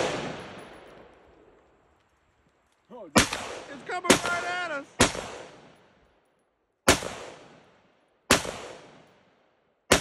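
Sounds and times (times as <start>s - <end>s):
rifle shots with echo: 0.0s - 1.4s, 3.1s - 6.0s, 6.8s - 10.0s.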